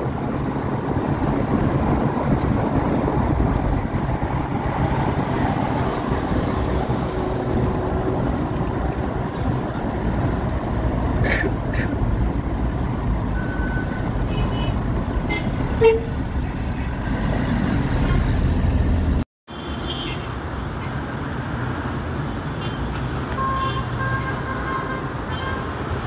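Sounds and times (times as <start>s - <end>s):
road traffic noise: 0.0s - 26.0s
car horns tooting: 13.5s - 16.2s.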